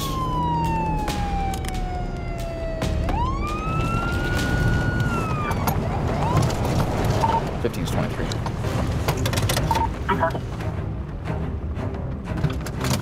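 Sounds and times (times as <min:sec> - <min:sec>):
police siren wailing: 0:00.0 - 0:08.4
moving car rumble: 0:00.0 - 0:13.0.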